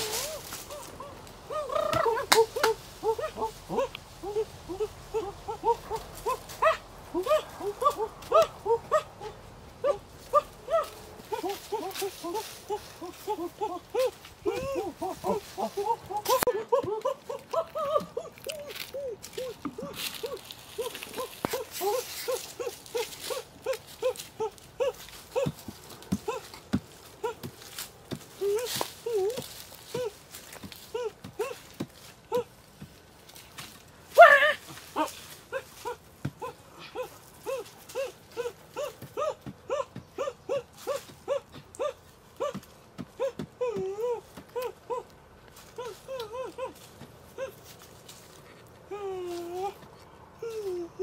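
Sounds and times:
small animal calling: 0.0 - 25.6
puppy whimpering: 13.0 - 22.7.

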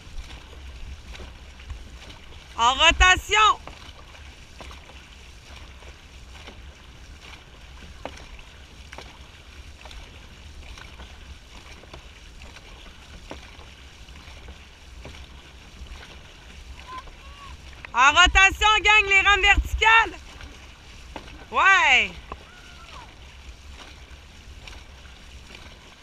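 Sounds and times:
paddles pulling through water: 0.0 - 26.0
constant low rumble: 22.1 - 26.0.

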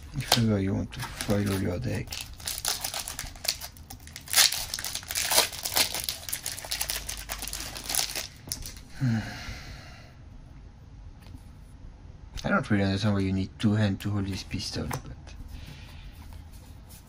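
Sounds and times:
foil wrapper crinkling and tearing: 0.2 - 8.8.

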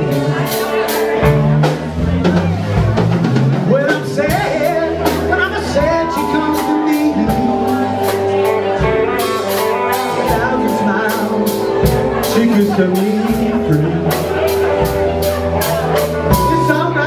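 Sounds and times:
man singing: 0.0 - 1.1, 3.5 - 17.0
drum kit with cymbals: 0.0 - 17.0
electric bass: 0.0 - 17.0
electric guitar sustained notes: 5.7 - 15.5.

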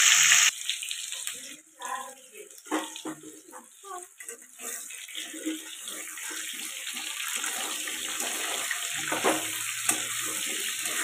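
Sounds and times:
potatoes sizzling in oil: 0.0 - 11.0
spatula scraping pan: 2.7 - 11.0.

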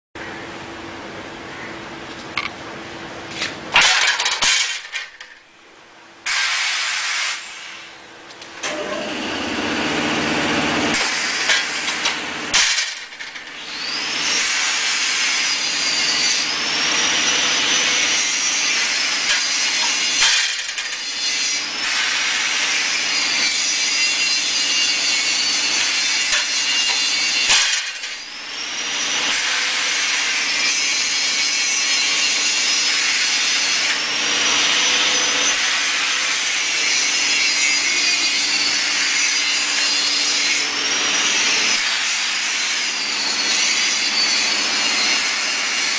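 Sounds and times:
metal shear blade clunks: 19.3 - 21.0.

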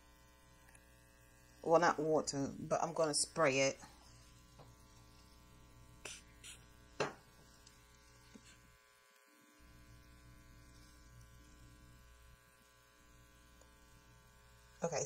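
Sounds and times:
steady electrical hum: 0.0 - 15.0
spray bottle hissing spritz: 6.0 - 6.7.

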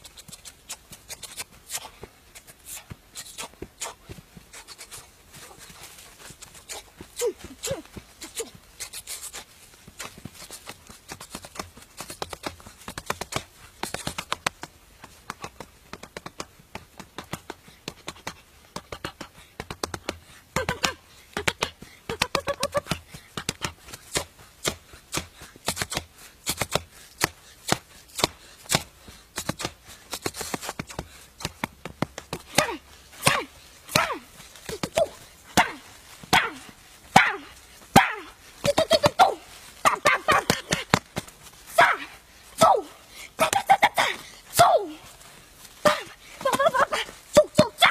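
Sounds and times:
fists striking tree trunk: 9.8 - 41.9.

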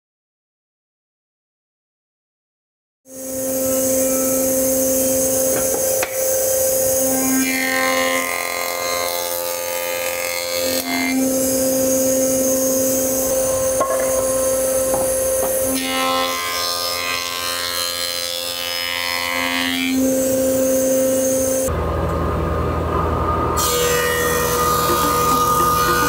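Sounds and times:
jointer humming: 3.1 - 26.0
blades cutting wood: 3.3 - 21.7, 23.6 - 26.0.

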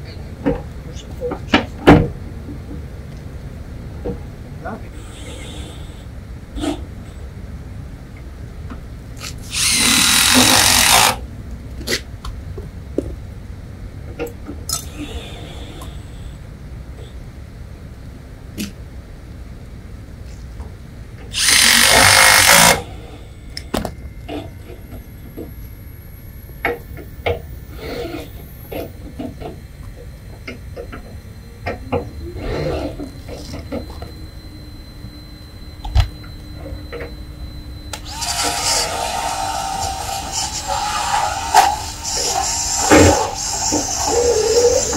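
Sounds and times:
power drill whining: 9.4 - 11.2, 21.3 - 23.0, 37.9 - 44.9
low steady rumble: 22.8 - 38.0.

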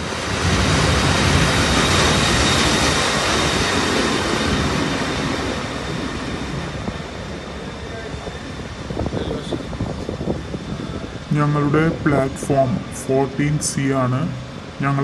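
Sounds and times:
electric locomotive running: 0.0 - 15.0.

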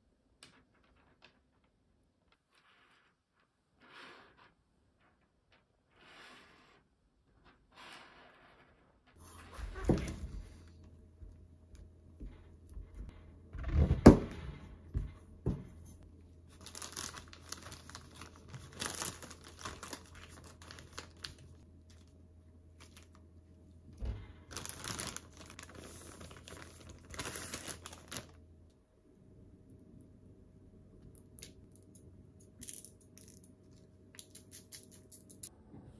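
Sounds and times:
plastic bag crinkling: 16.5 - 22.1, 22.8 - 23.2, 24.5 - 28.4.

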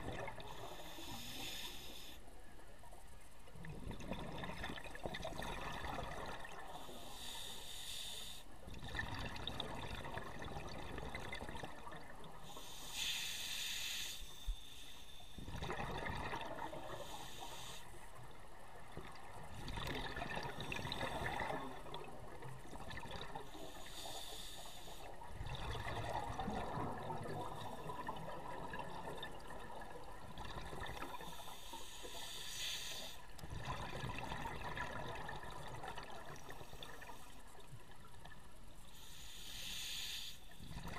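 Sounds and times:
hissing regulator inhale: 0.4 - 2.2, 6.7 - 8.5, 12.4 - 15.5, 16.8 - 18.0, 23.4 - 25.2, 31.0 - 33.4, 38.8 - 40.9
exhaled bubbles burbling: 3.6 - 6.8, 8.7 - 12.4, 15.4 - 17.0, 18.7 - 23.5, 25.3 - 31.4, 33.4 - 37.0.

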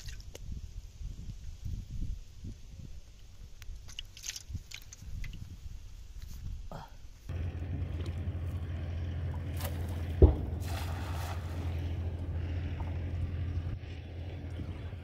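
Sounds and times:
wind rumbling on microphone: 0.0 - 6.7, 9.5 - 15.0
net splashing into water: 9.5 - 11.9
loud thump: 10.1 - 10.7.

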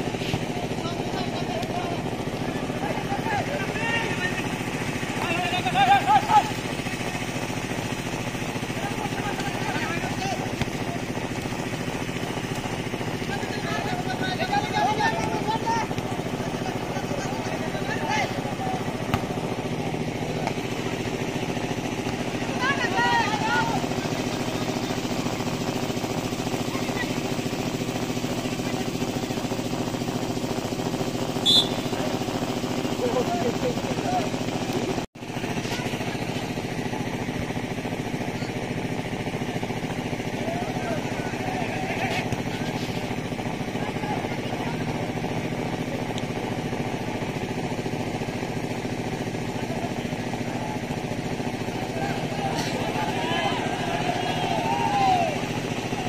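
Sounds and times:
engine running with low hum: 0.0 - 56.0
referee's whistle blast: 31.4 - 32.0.

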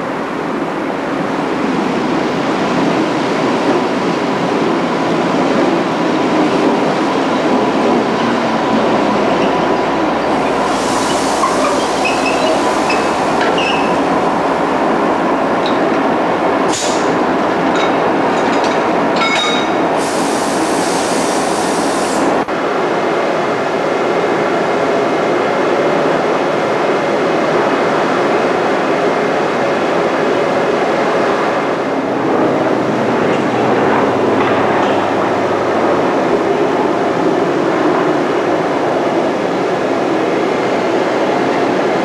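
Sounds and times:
diesel locomotive running: 0.0 - 27.0, 30.6 - 42.0
electric locomotive running: 3.8 - 22.4
hiss: 10.5 - 13.4, 16.7 - 17.2, 20.0 - 22.4
short squeals and clicks: 11.1 - 14.0.

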